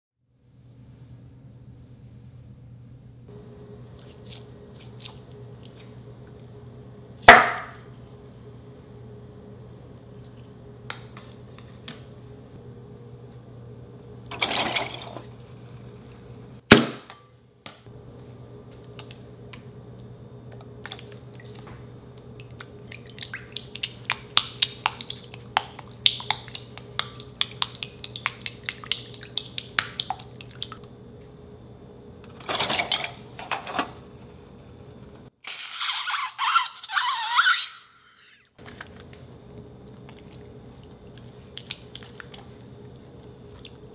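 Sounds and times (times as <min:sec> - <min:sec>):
steady low hum: 0:00.3 - 0:35.4, 0:38.5 - 0:43.9.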